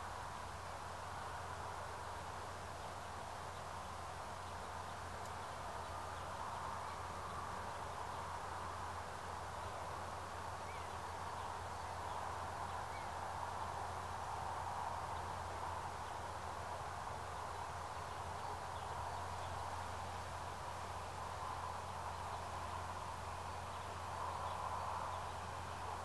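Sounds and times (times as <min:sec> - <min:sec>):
outdoor background noise: 0:00.0 - 0:26.0
faint bird chirps: 0:02.9 - 0:14.2.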